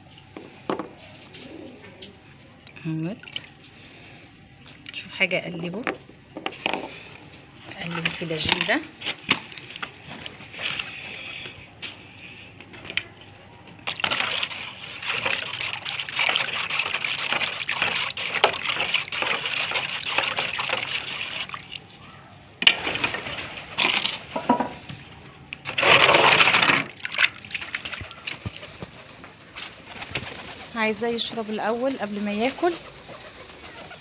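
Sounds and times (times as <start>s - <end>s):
water sloshing in tray: 12.7s - 24.5s, 25.6s - 29.0s.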